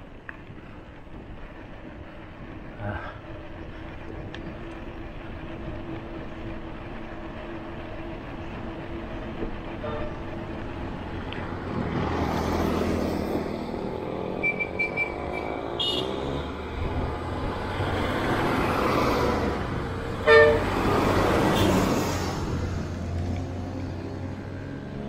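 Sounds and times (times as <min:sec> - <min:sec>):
road traffic noise: 0:00.0 - 0:25.0
loud car horn honk: 0:14.8 - 0:16.2, 0:20.2 - 0:20.7.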